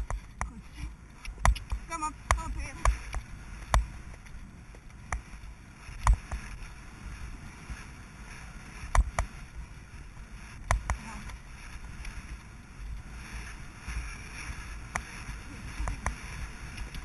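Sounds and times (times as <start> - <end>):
wind on microphone: 0.0 - 17.0
sharp clicks: 1.2 - 4.4
muffled hoofbeats on leaves: 1.4 - 17.0.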